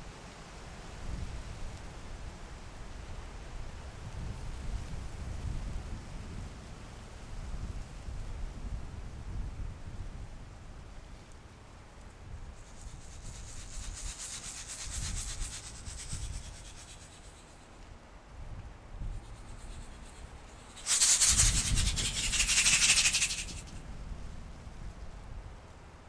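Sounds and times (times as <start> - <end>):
low steady hiss: 0.0 - 26.0
dragonfly wings buzzing: 12.6 - 17.8, 19.1 - 23.8.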